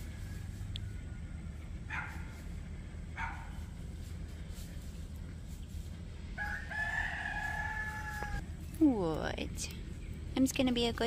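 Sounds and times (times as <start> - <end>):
rooster crowing: 0.0 - 2.2, 6.3 - 8.4.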